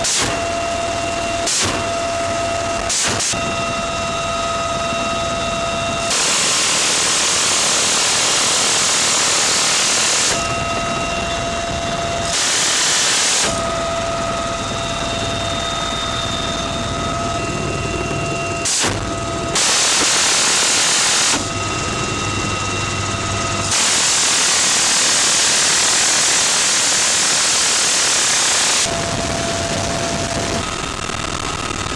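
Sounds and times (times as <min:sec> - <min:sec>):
helicopter whine: 0:00.0 - 0:31.9.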